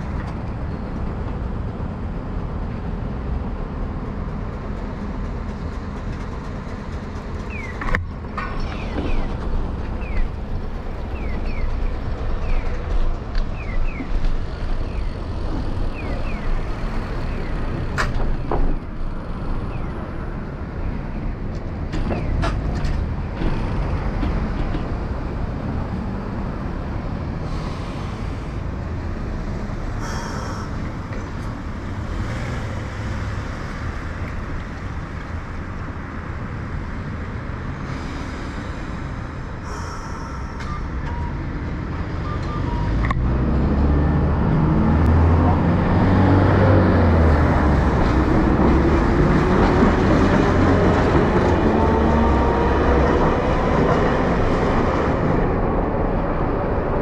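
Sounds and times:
street traffic rumble: 0:00.0 - 0:57.0.

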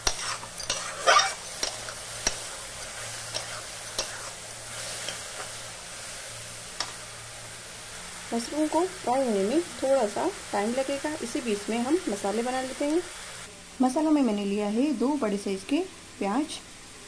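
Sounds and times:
metal spatula scraping pan: 0:00.0 - 0:05.5
mushrooms sizzling in oil: 0:00.0 - 0:17.0.

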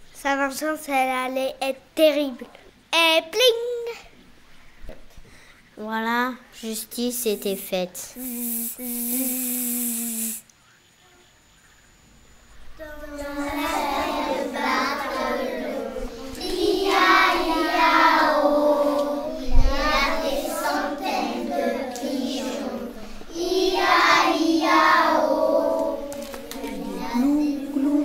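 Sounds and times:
children singing: 0:13.0 - 0:28.0.

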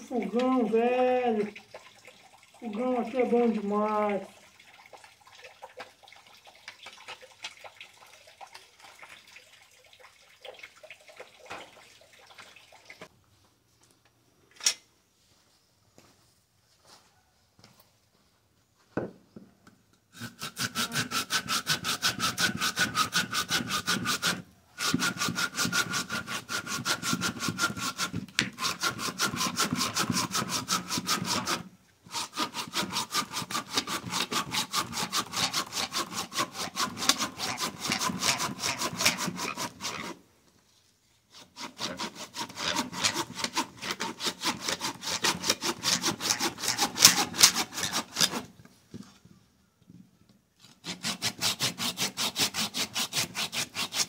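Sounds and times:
hand saw cutting wood: 0:20.1 - 0:40.3, 0:41.3 - 0:48.6, 0:50.6 - 0:54.0.

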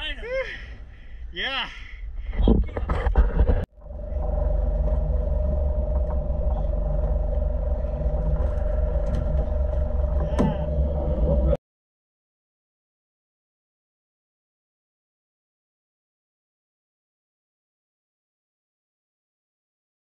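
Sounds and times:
boat engine running: 0:03.7 - 0:11.6.

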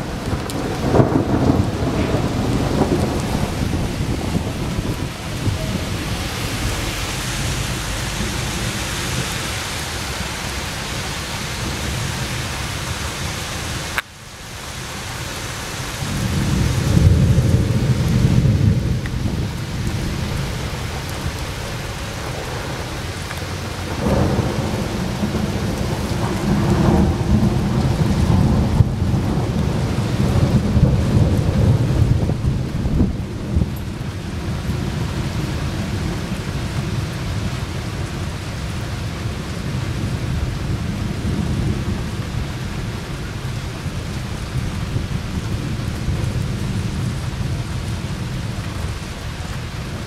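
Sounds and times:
rolling thunder: 0:00.0 - 0:10.8, 0:15.9 - 0:50.0
heavy rain hiss: 0:00.0 - 0:50.0.

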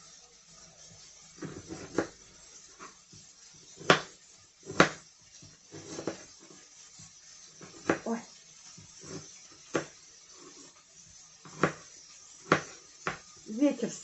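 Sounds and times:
knife chopping on wooden board: 0:01.4 - 0:02.1, 0:03.8 - 0:05.0, 0:05.7 - 0:06.2, 0:07.6 - 0:08.0, 0:09.0 - 0:10.0, 0:11.5 - 0:13.3.

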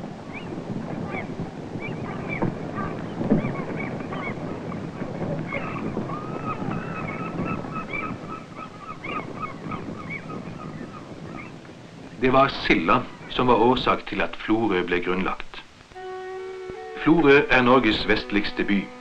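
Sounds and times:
sea noise: 0:00.0 - 0:19.0
wind: 0:00.0 - 0:19.0
seagulls crying: 0:00.2 - 0:11.7.

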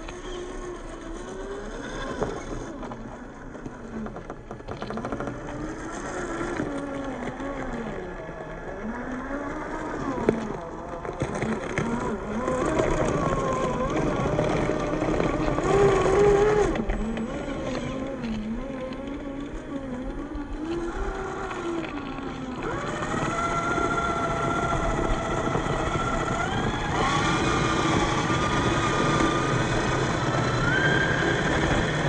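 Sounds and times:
electric motor whining: 0:00.0 - 0:32.0.

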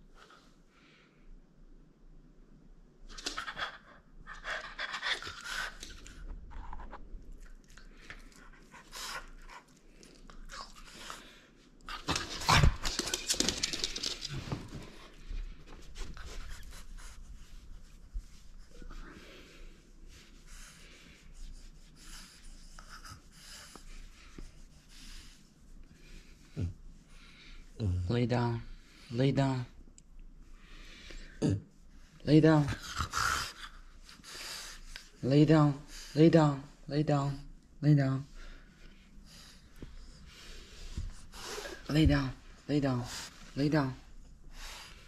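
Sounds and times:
dog panting heavily: 0:03.2 - 0:06.2.

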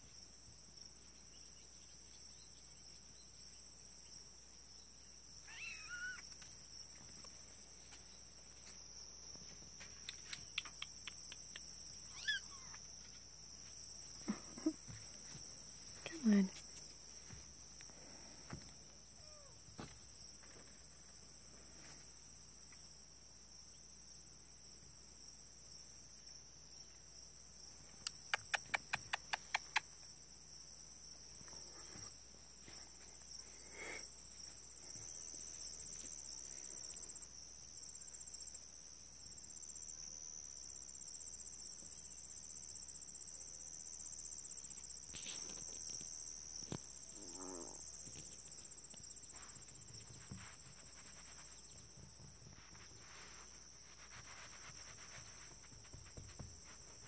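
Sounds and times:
insects droning: 0:00.0 - 0:57.0.

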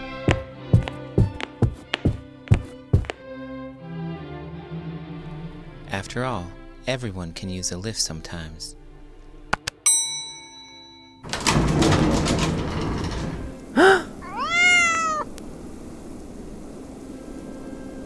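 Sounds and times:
quiet background music: 0:00.0 - 0:13.8, 0:16.1 - 0:18.0
elevator ding: 0:09.9 - 0:13.5
cat meowing: 0:13.8 - 0:15.4.

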